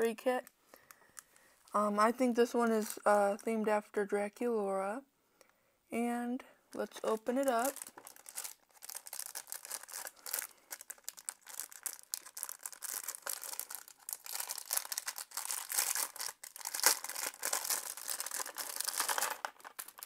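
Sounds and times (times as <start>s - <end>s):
plastic packaging crinkling: 6.8s - 20.0s.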